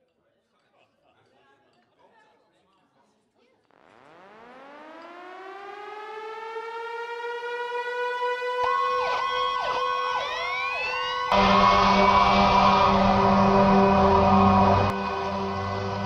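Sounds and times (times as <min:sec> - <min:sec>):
siren wailing: 0:04.0 - 0:16.0
second siren sweeping: 0:04.2 - 0:16.0
loud full sound: 0:06.8 - 0:16.0.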